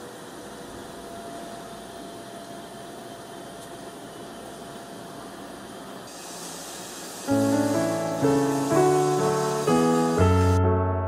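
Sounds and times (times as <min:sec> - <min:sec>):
thin steady whine: 0:00.0 - 0:10.6
machine hum and hiss: 0:00.0 - 0:10.7.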